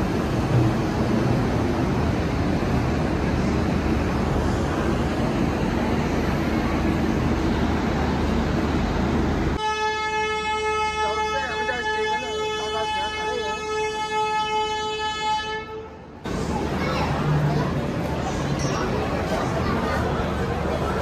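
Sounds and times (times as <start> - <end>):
train coaches rumbling past: 0.0 - 21.0.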